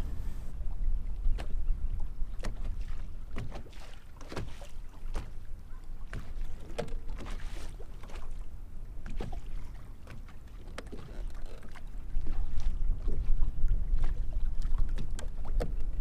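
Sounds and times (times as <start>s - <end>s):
low wind rumble on microphone: 0.0s - 3.8s, 11.8s - 16.0s
small waves slapping hull: 0.0s - 16.0s.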